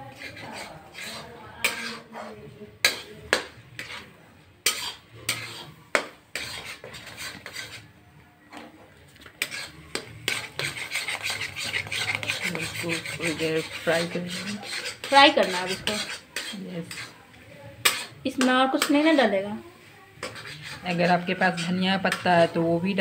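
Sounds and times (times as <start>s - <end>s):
spatula scraping pan: 0.0s - 8.0s, 8.6s - 23.0s
spatula clinking on pan: 2.8s - 4.0s, 17.8s - 19.1s.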